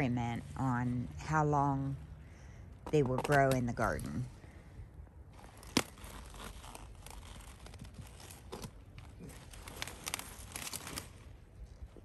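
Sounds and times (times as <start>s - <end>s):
cabbage leaves crinkling and tearing: 5.4s - 12.0s.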